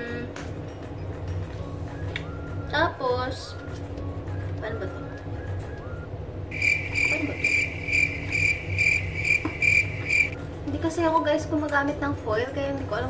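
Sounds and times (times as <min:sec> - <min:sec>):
cricket chirping: 0:06.5 - 0:10.4.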